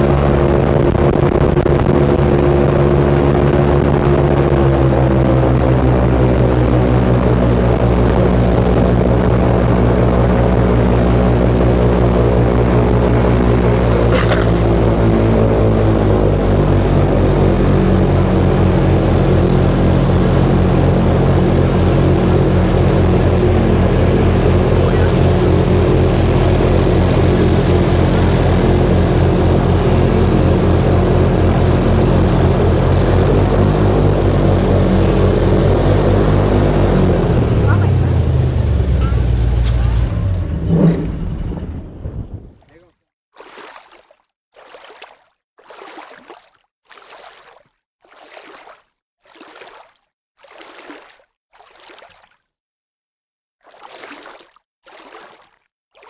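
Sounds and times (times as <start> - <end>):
airboat engine and propeller: 0.0 - 42.5.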